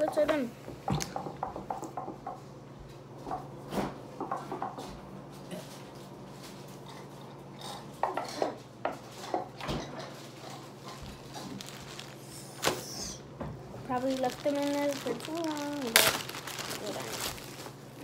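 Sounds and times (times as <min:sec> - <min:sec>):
dishes and utensils clinking: 0:06.8 - 0:11.5.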